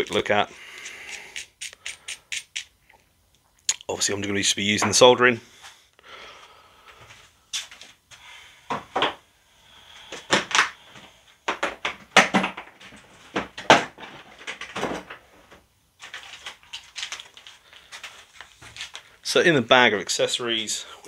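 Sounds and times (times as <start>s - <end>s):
plastic bags being handled: 16.0s - 19.3s.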